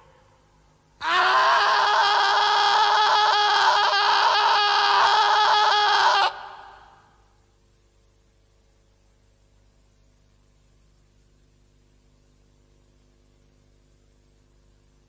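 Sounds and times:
harsh shrieking cry: 0:01.0 - 0:07.1.

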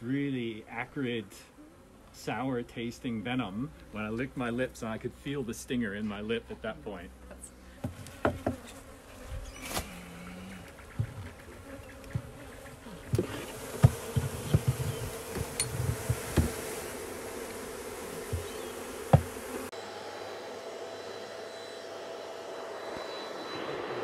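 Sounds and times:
honeybees buzzing: 0:00.1 - 0:24.0
wooden knocks and thumps: 0:07.8 - 0:08.6, 0:10.9 - 0:11.4, 0:13.1 - 0:16.6, 0:18.3 - 0:19.3.

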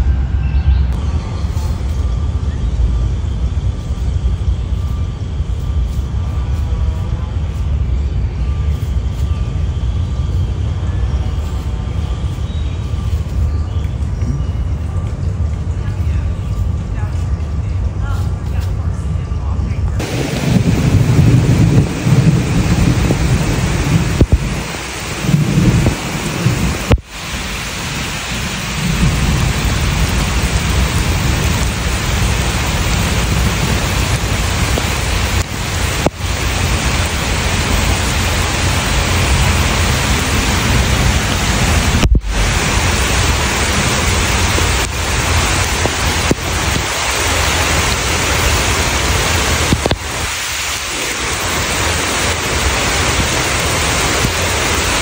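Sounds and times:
low rumble: 0:00.0 - 0:55.0
heavy rain falling: 0:19.9 - 0:55.0.

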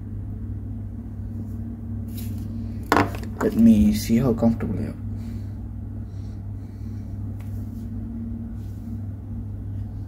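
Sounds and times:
low hum: 0:00.0 - 0:10.0.

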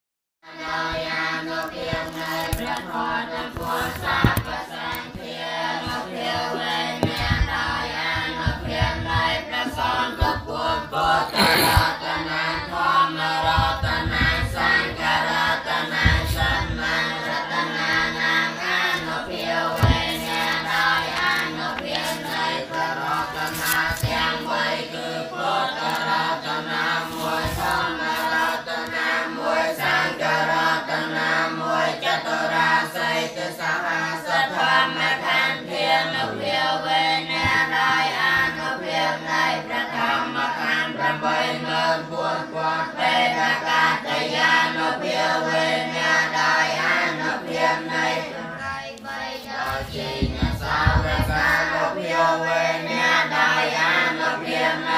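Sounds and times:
group of voices chanting: 0:00.4 - 0:54.9
low thumps: 0:05.8 - 0:17.3, 0:19.2 - 0:21.2, 0:49.7 - 0:51.8.

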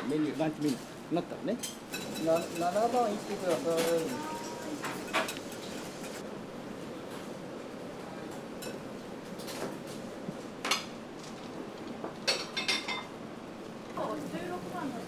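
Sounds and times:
rushing kitchen background: 0:00.0 - 0:07.4
dishes and utensils clinking: 0:01.6 - 0:06.2, 0:12.3 - 0:13.1.

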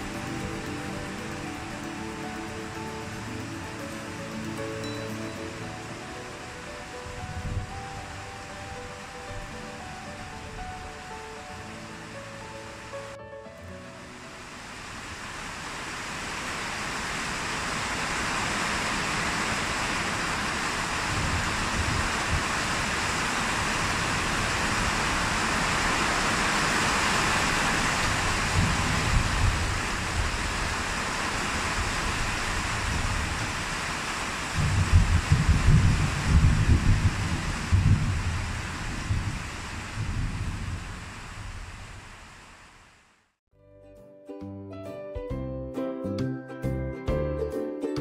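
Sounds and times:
heavy rain: 0:00.0 - 0:13.2, 0:13.8 - 0:43.3
thunder rumbling: 0:31.8 - 0:42.2.

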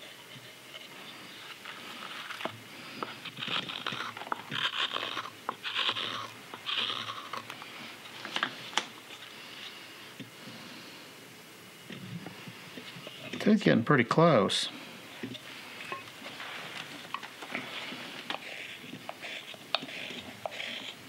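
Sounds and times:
hook knife scraping wood: 0:00.0 - 0:09.8, 0:15.2 - 0:21.0.

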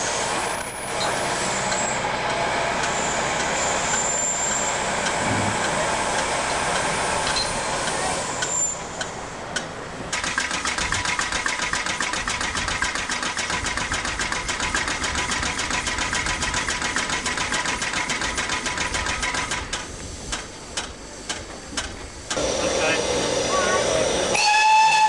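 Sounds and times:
steady mechanical whine: 0:00.0 - 0:11.3, 0:19.1 - 0:24.4
fast mechanical clatter: 0:10.1 - 0:20.4.

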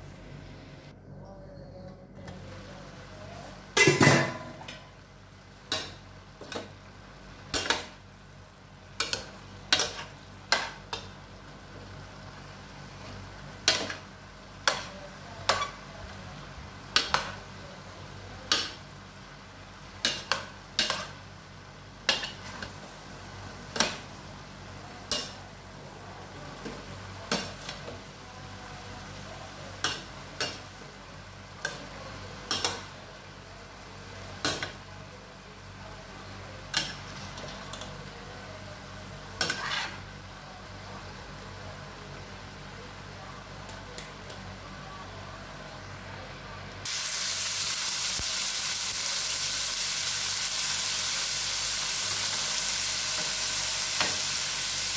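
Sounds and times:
metal spoon clanking on pan: 0:32.5 - 0:32.8.

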